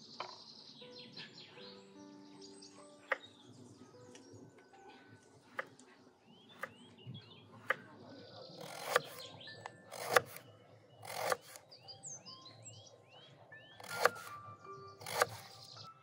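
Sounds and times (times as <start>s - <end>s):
small birds chirping: 0.0s - 16.0s
knife tapping wooden board: 6.6s - 6.8s, 7.6s - 7.9s, 8.6s - 9.2s, 9.9s - 10.4s, 13.8s - 14.3s, 15.0s - 15.5s
knife slicing on cutting board: 8.6s - 9.3s, 9.9s - 10.4s, 11.1s - 11.6s, 13.8s - 14.3s, 15.0s - 15.6s.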